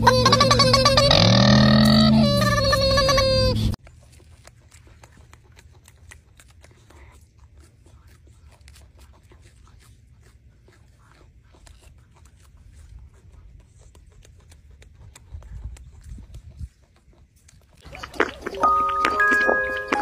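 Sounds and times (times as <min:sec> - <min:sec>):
low steady rumble: 0:00.0 - 0:03.8
monkey chewing fruit: 0:00.0 - 0:20.0.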